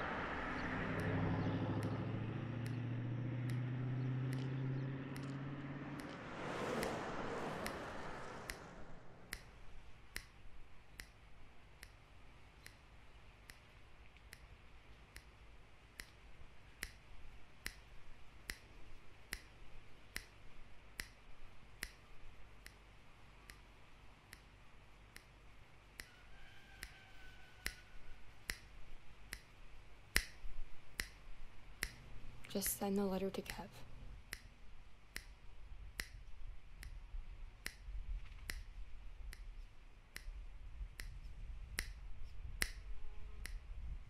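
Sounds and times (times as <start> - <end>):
faint low hum: 0.0 - 44.0
fingers snapping: 0.9 - 1.2, 1.8 - 2.0, 2.6 - 9.6, 10.2 - 11.2, 11.8 - 12.0, 13.4 - 14.5, 15.1 - 15.4, 16.0 - 16.2, 16.8 - 17.0, 17.6 - 20.4, 21.0 - 21.2, 21.8 - 22.9, 23.5 - 23.7, 25.1 - 25.4, 26.8 - 27.0, 27.6 - 31.2, 31.8 - 32.1, 34.3 - 34.5, 35.1 - 35.4, 36.0 - 36.2, 37.6 - 40.4, 41.0 - 43.7.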